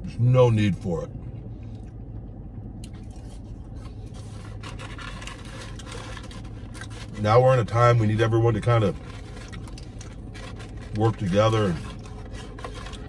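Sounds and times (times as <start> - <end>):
low cabin hum: 0.0 - 13.0
man chewing: 2.8 - 7.2, 9.0 - 13.0
paper carton rustling: 8.5 - 13.0.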